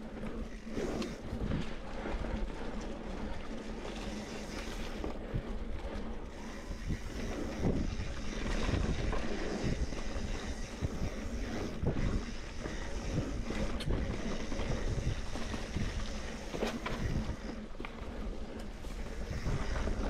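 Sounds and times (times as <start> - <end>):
bike tyres rolling on dirt: 0.0 - 20.0
wind noise on microphone: 0.0 - 20.0
bike knocks and rattles: 12.0 - 18.0.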